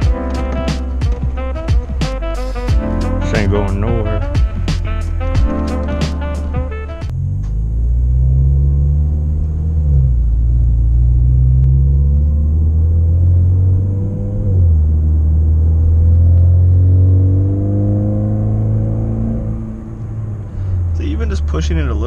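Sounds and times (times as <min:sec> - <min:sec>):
car engine accelerating through gears: 0:05.3 - 0:22.0.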